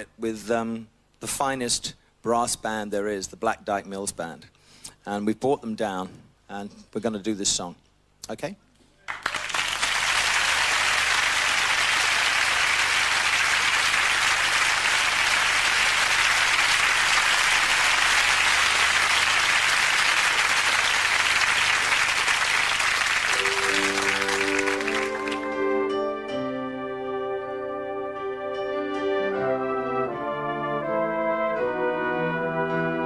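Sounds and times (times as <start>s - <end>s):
audience applauding: 9.0s - 25.9s
brass band slow chords: 23.3s - 33.0s.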